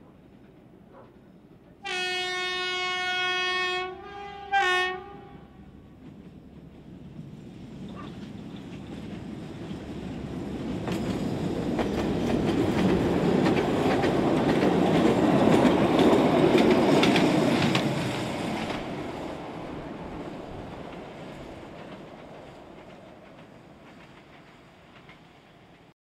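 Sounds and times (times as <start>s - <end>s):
train wheels clicking on rail joints: 5.8s - 25.9s.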